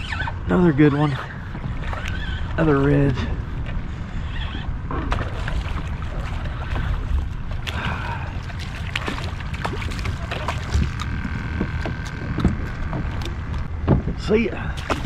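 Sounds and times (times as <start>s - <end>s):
water slapping a kayak: 0.0s - 15.0s
wind rumbling on microphone: 0.0s - 15.0s
small splashes and knocks: 5.0s - 14.1s, 14.7s - 15.0s.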